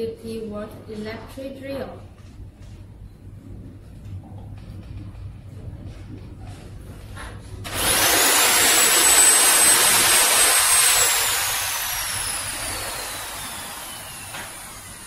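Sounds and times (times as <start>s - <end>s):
electric drill whining: 7.7s - 15.0s.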